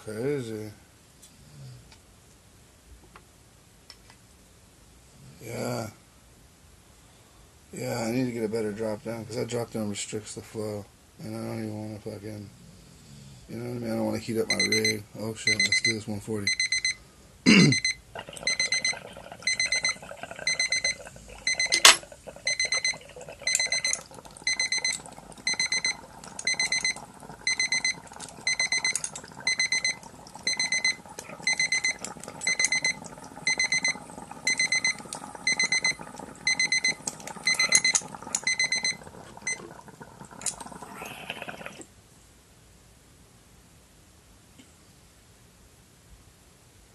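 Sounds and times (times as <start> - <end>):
digital timer alarm beeping: 14.5 - 17.0, 17.7 - 39.6
water bubbling in glass pipe: 18.2 - 41.8.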